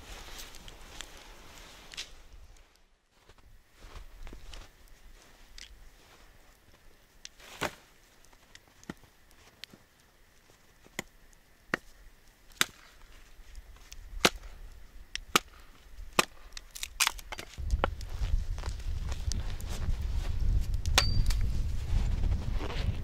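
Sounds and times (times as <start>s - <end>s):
dry wood cracking: 4.2s - 5.8s, 6.5s - 19.7s.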